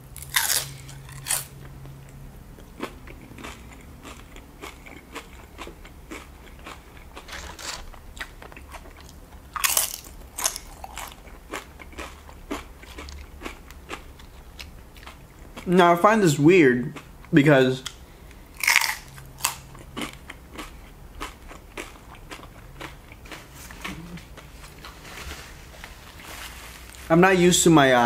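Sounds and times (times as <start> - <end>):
chips crunching while chewed: 0.2 - 2.0, 2.6 - 15.7, 18.6 - 25.0.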